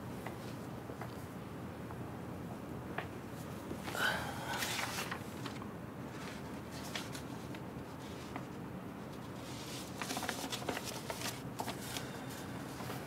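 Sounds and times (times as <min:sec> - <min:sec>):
low room hum: 0:00.0 - 0:13.0
paper rustling: 0:03.9 - 0:13.0.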